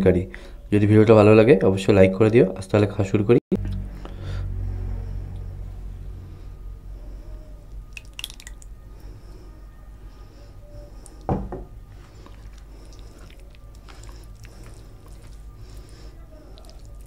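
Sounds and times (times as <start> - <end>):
hand mixing rice wet squishing: 7.8 - 8.7, 11.9 - 17.0.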